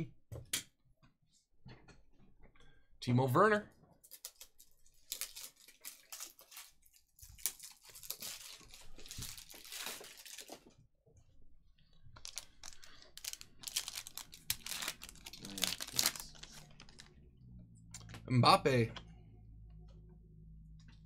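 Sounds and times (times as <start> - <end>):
cards and foil wrapper crinkling: 4.0 - 10.7, 12.1 - 17.2.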